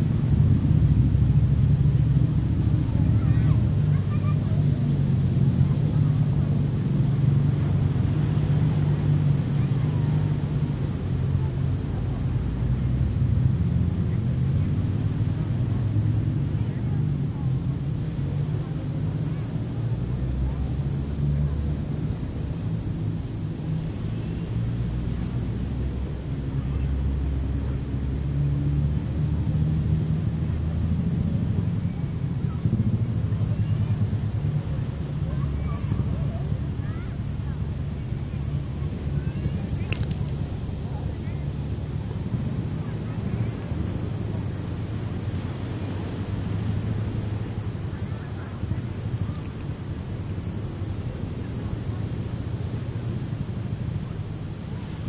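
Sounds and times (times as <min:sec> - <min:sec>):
beach ambience low rumble: 0:00.0 - 0:55.0
low engine drone: 0:00.0 - 0:55.0.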